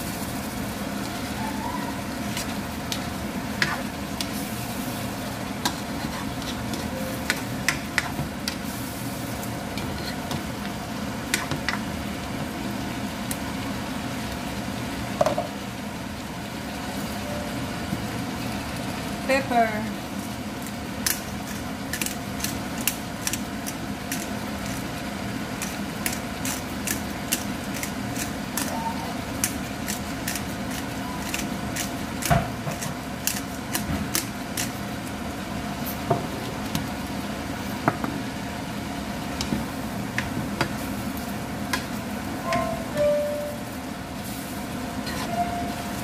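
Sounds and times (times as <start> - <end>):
food sizzling in a frying pan: 0.0 - 46.0
steady mechanical hum: 0.0 - 46.0.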